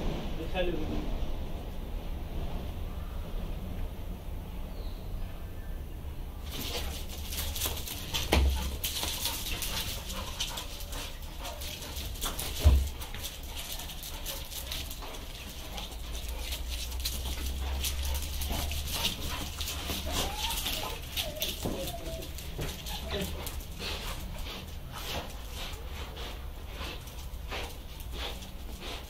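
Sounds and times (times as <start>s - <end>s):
dog claws clicking on tiles: 6.5s - 24.3s
heavy thumps: 11.9s - 13.8s
dog whining: 17.6s - 23.7s.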